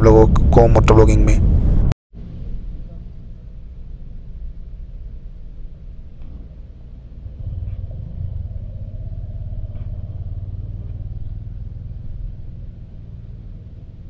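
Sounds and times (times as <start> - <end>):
motorcycle engine idling: 2.8 - 14.0
fuel pump humming: 2.9 - 14.0.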